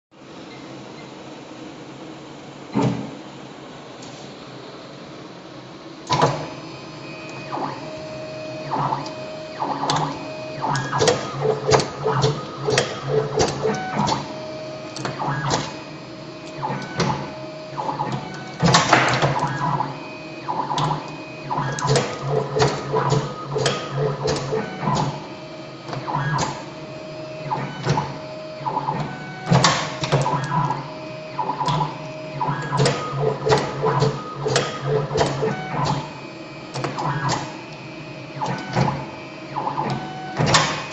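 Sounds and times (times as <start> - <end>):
machine motors whining: 6.0 - 40.9
sharp machine clacks: 8.7 - 14.3, 17.8 - 19.9, 20.5 - 25.2, 31.4 - 36.2.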